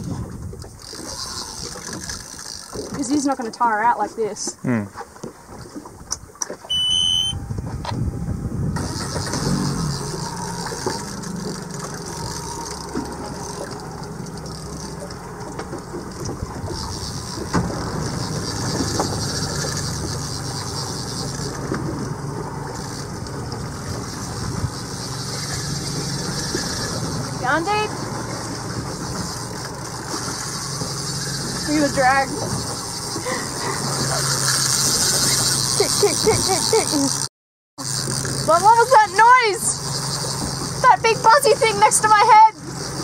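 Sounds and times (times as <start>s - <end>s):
outboard motor idling: 0.0s - 43.0s
wind and water hiss: 0.0s - 43.0s
electronic beep: 6.7s - 7.5s.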